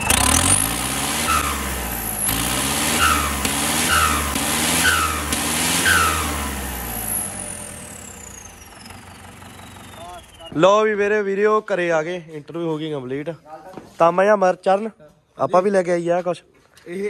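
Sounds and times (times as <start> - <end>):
tractor diesel engine revving: 0.0 - 11.0.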